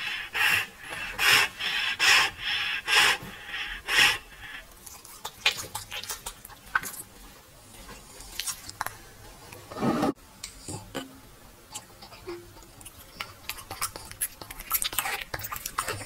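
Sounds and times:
dog raspy breaths: 0.0s - 6.2s.

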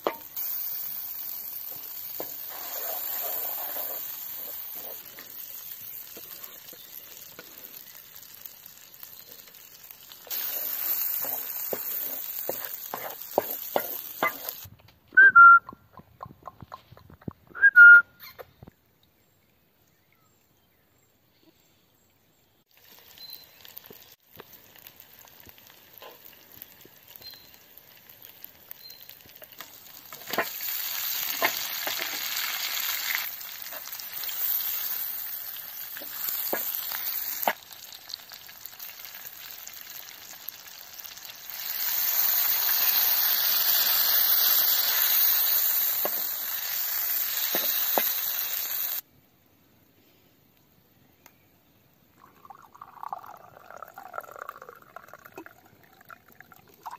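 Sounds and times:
duck sizzling in a pan: 0.0s - 14.7s, 22.7s - 49.0s
wooden spoon stirring: 10.4s - 14.6s.

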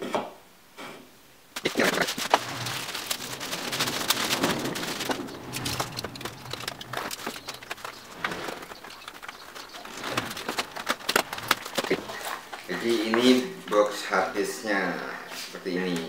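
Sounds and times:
plastic bag crinkling: 1.5s - 13.6s.

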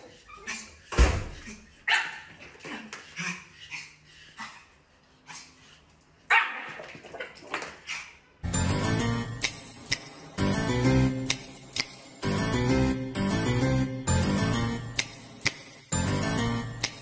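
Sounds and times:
puppy yapping: 6.3s - 7.3s.

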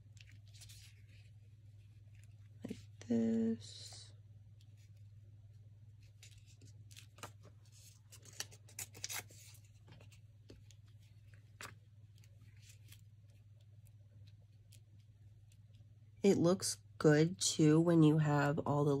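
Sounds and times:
paper crinkles: 0.0s - 2.9s, 6.0s - 15.6s
paper strips rustling: 0.0s - 2.9s, 6.0s - 13.4s
low steady hum: 0.0s - 19.0s.

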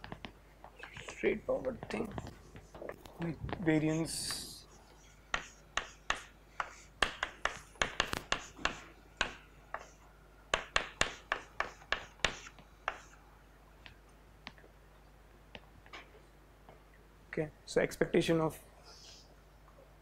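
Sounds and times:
chalk writing on a blackboard: 3.8s - 13.2s.

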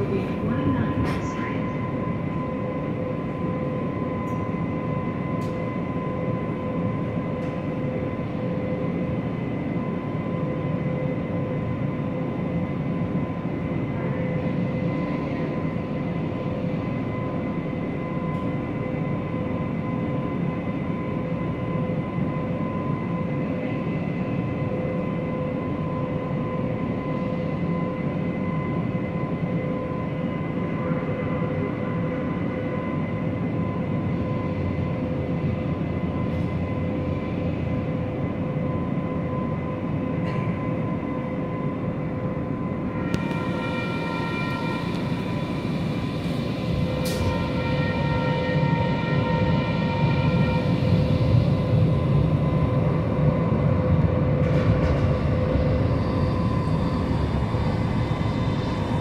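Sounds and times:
high-pitched equipment whine: 42.7s - 59.0s.

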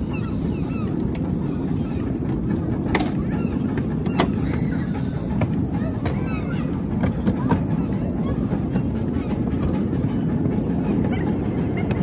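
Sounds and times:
waterfowl calling: 0.0s - 2.1s, 3.0s - 6.8s
miniature train rumbling: 0.0s - 12.0s.

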